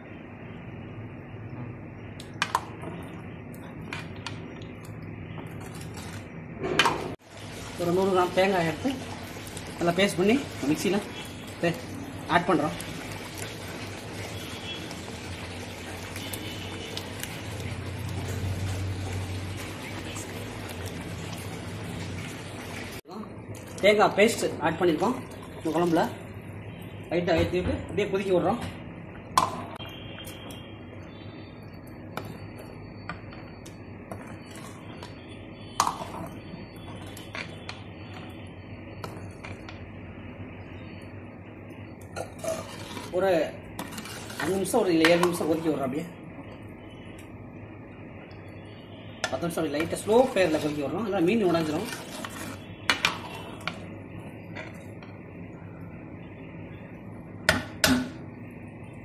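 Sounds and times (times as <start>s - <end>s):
ladle scraping and knocking pan: 42.2s - 43.2s, 43.8s - 45.4s, 51.4s - 53.8s
metal ladle stirring curry: 42.2s - 45.7s, 49.8s - 53.8s.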